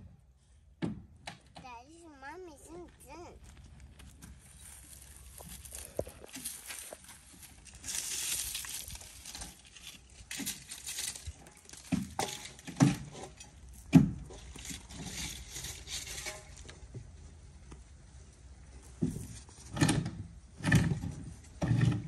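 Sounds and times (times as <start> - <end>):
palm fronds scraping over gravel: 3.4 - 16.9.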